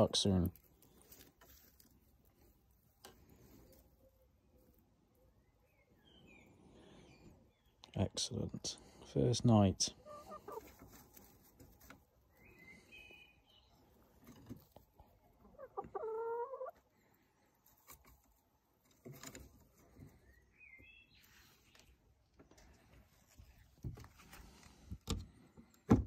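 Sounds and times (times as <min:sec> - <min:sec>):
hens clucking: 0:09.8 - 0:12.3, 0:14.0 - 0:16.9.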